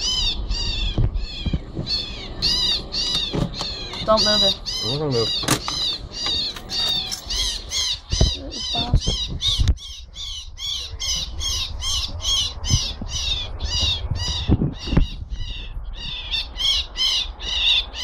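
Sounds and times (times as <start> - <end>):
low thumps: 0.0 - 4.4
bird squawking harshly: 0.0 - 18.0.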